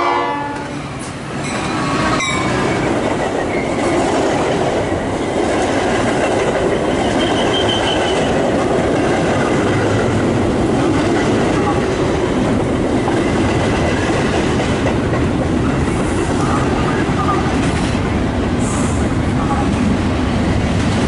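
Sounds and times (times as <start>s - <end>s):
train passing at speed: 0.0s - 21.0s
high wheel squeal: 6.9s - 8.3s.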